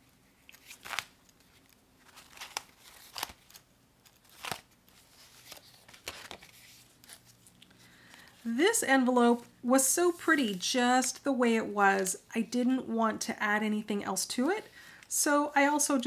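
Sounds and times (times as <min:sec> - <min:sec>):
paper pages rustling: 0:00.5 - 0:08.5.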